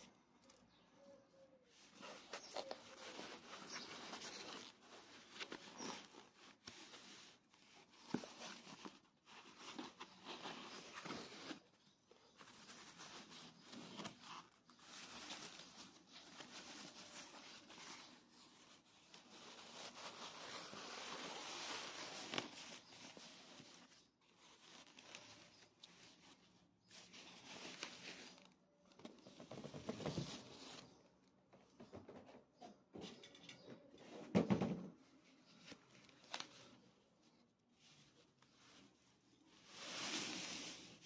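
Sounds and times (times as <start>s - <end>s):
foam packing sheets rustling: 1.8s - 28.6s.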